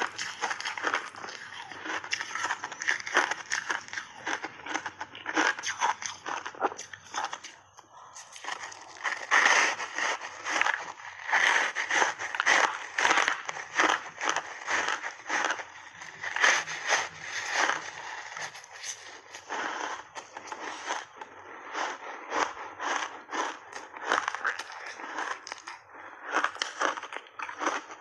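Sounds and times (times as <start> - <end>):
crunching of ice bar being chewed: 0.0 - 28.0.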